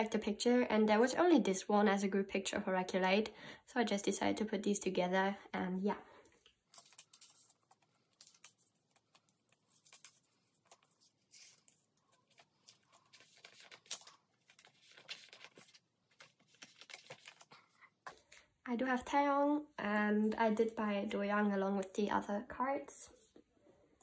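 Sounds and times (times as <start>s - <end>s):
plastic sleeves rustling: 6.1s - 18.5s.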